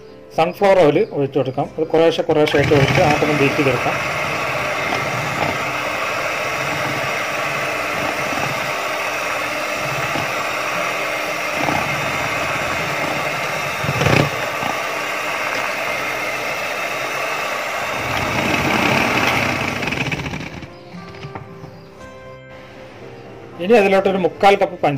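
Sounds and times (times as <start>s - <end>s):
electric hand mixer whirring: 2.3s - 21.8s.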